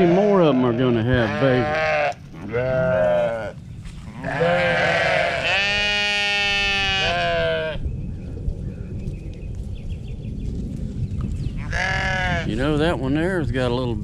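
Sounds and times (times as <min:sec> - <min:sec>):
sheep bleating: 0:00.0 - 0:07.8, 0:11.6 - 0:12.6.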